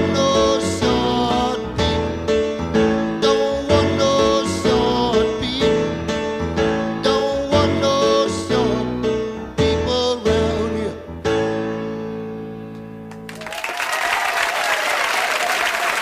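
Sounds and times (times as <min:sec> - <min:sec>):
song with piano and singing: 0:00.0 - 0:13.0
audience applause: 0:13.1 - 0:16.0.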